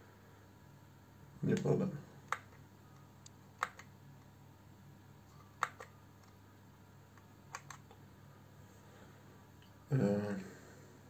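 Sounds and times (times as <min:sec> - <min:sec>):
faint low hum: 0:00.0 - 0:11.0
controller button clicks: 0:03.6 - 0:03.9, 0:05.6 - 0:06.3, 0:07.2 - 0:07.9.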